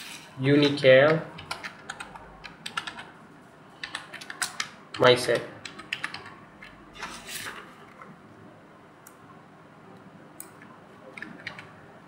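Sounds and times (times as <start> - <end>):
computer mouse clicking: 0.6 - 3.1, 3.8 - 5.0, 10.4 - 11.7.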